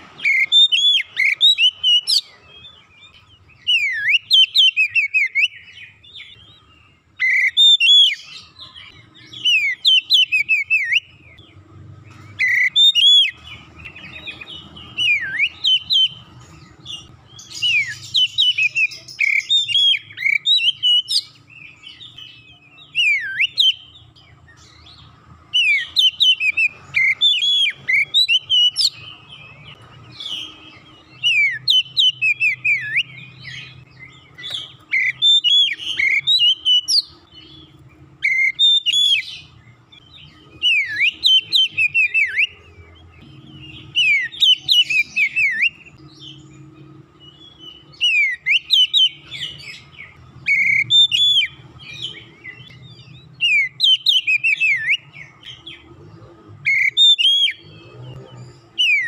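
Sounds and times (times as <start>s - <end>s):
magpie-robin singing: 0.0s - 59.0s.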